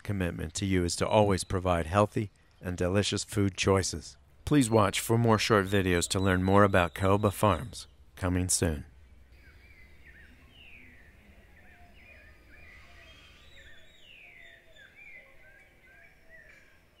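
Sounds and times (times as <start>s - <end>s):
birds chirping: 0.0s - 17.0s
long descending bird whistles: 9.4s - 17.0s.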